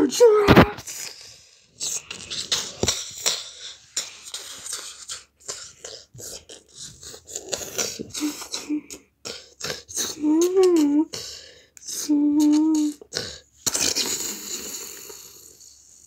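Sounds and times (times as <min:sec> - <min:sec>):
person making hissing mouth sounds: 0:00.7 - 0:11.2, 0:11.8 - 0:16.0
person humming: 0:09.8 - 0:11.2, 0:11.8 - 0:13.2.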